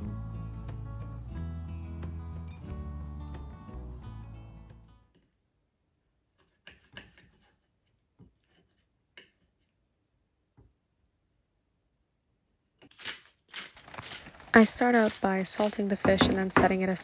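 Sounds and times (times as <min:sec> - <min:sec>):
music: 0:00.0 - 0:05.1.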